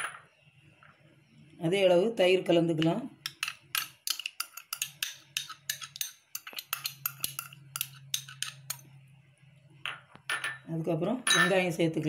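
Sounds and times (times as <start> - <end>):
metal spoon scraping glass cup: 3.2 - 8.8.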